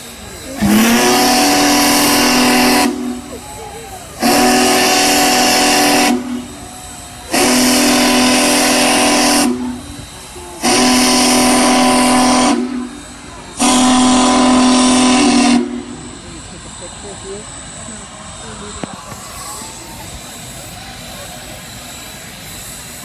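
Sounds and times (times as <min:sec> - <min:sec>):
crowd murmuring: 0:00.0 - 0:23.0
steam whistle blasts: 0:00.6 - 0:03.4, 0:04.2 - 0:16.0.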